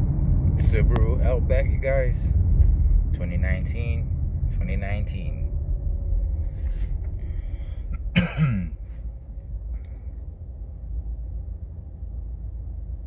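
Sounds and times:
road and engine rumble in car: 0:00.0 - 0:13.0
person clearing throat: 0:08.0 - 0:08.8.

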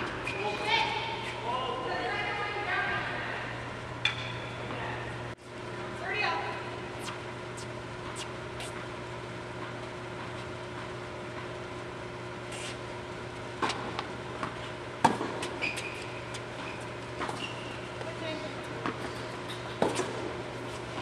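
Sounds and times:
steady hum: 0:00.0 - 0:21.0
shoe squeak: 0:00.2 - 0:00.7, 0:15.4 - 0:18.0
tennis ball bouncing: 0:13.6 - 0:17.4, 0:18.8 - 0:21.0
rackets hitting tennis ball: 0:13.6 - 0:21.0.

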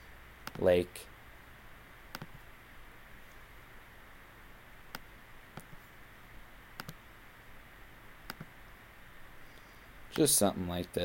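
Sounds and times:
faint steady hiss: 0:00.0 - 0:11.0
computer mouse clicking: 0:00.4 - 0:00.6, 0:02.1 - 0:02.5, 0:04.9 - 0:05.8, 0:06.8 - 0:07.0, 0:08.2 - 0:08.5.

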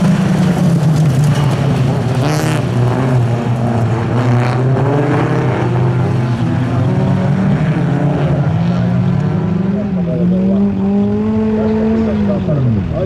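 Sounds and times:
racing car engines droning: 0:00.0 - 0:13.0.

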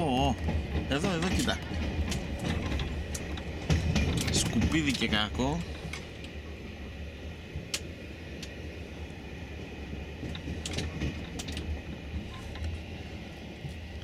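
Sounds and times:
sharp clicks and rattles: 0:00.0 - 0:06.4, 0:10.2 - 0:12.8
train rumbling inside carriage: 0:00.0 - 0:14.0.

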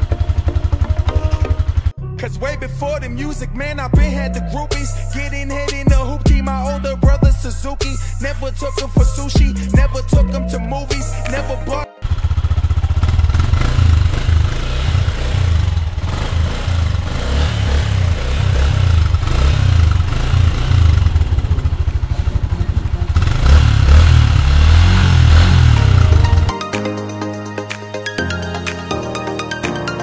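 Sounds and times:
motorcycle engine idling and revving: 0:00.0 - 0:02.0, 0:03.6 - 0:11.1, 0:12.0 - 0:26.5.

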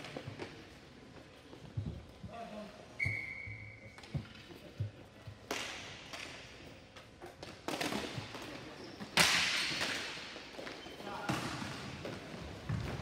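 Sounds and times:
hockey stick and ball hits: 0:07.2 - 0:13.0.

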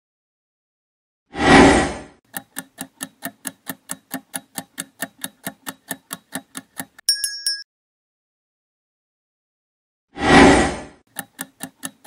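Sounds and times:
countdown clock ticking: 0:02.3 - 0:07.4, 0:11.1 - 0:12.0.

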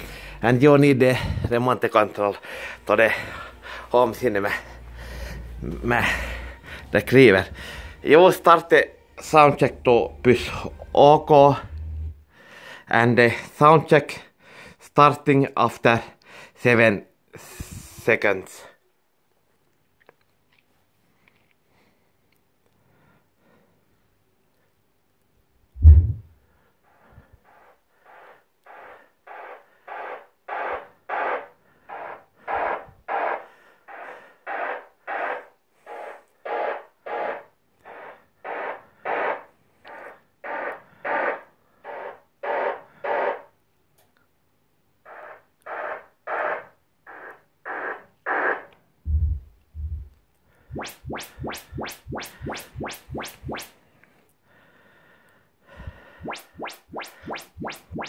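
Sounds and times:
low subwoofer burst: 0:25.8 - 0:26.3
rising sweep chirps: 0:50.7 - 0:53.7, 0:56.1 - 0:58.0.

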